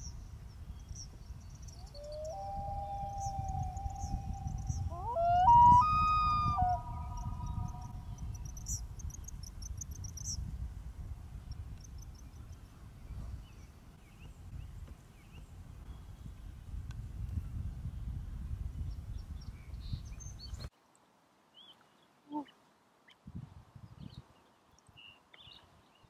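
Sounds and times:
loons wailing: 2.0 - 8.0.

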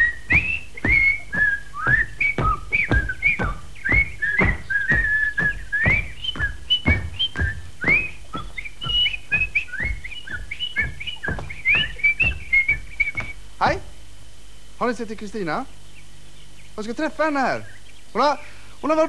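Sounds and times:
person whistling a tune: 0.0 - 13.4
footsteps on stage floor: 0.0 - 13.8.

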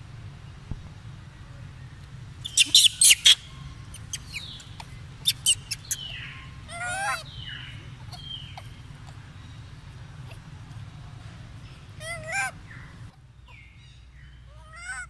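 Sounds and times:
monkey wavering call: 2.4 - 9.1
monkeys shrieking: 2.4 - 9.3, 12.0 - 13.1, 14.6 - 15.0.

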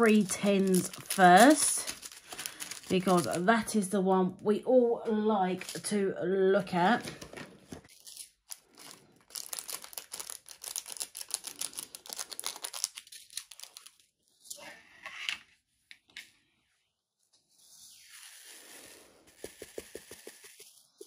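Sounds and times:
plastic bag crinkling: 0.0 - 3.7, 7.1 - 14.0.

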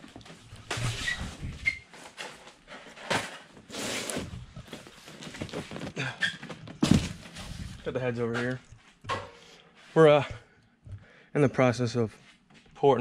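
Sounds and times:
cardboard boxes scraping on metal: 2.8 - 6.0.

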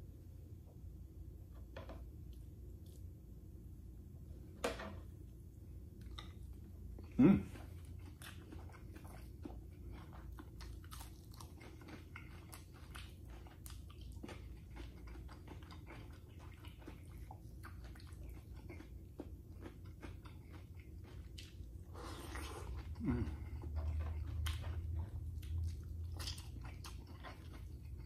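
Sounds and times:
crunchy chewing: 6.0 - 28.0.

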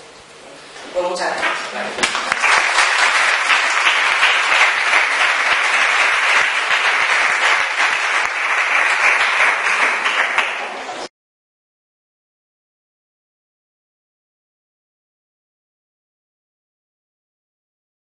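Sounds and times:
audience applauding: 1.4 - 11.1.

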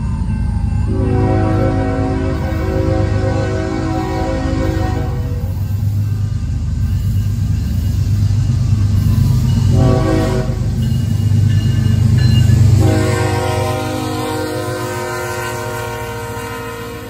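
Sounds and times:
diesel locomotive engine rumble: 0.0 - 17.0
train horn blast: 0.9 - 5.6, 9.7 - 10.7, 12.8 - 17.0.

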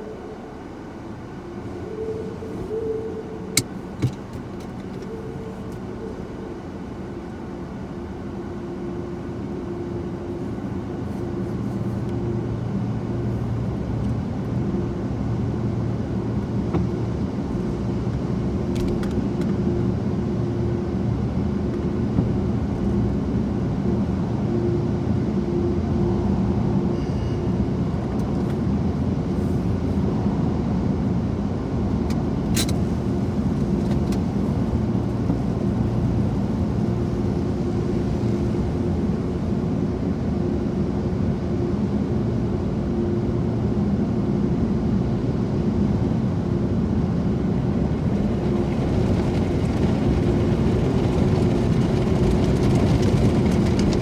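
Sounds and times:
car wash machinery rumbling: 27.6 - 54.0.

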